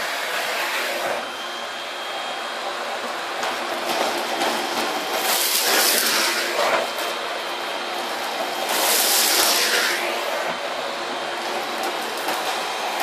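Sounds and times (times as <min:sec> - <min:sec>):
vacuum cleaner running: 0:00.0 - 0:13.0.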